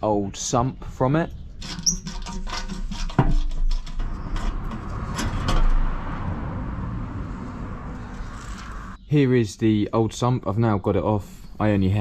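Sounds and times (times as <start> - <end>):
steady low rush: 4.6 - 9.4.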